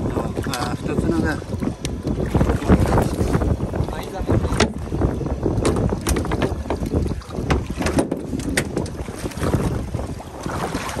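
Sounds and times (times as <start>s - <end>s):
wind buffeting microphone: 0.0s - 11.0s
sharp knocks and clicks: 5.6s - 6.8s, 7.5s - 9.0s.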